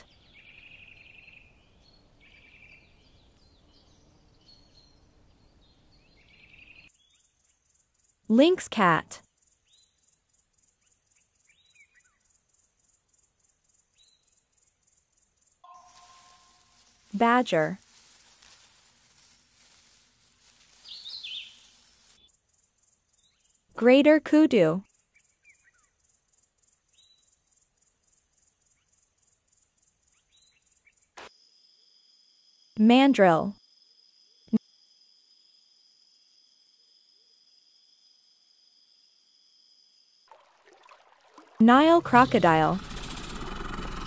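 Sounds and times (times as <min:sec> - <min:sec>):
faint high insect trill: 0:00.1 - 0:08.3, 0:09.2 - 0:23.8, 0:24.8 - 0:32.8, 0:33.6 - 0:41.5
short falling bird chirps: 0:20.7 - 0:22.2.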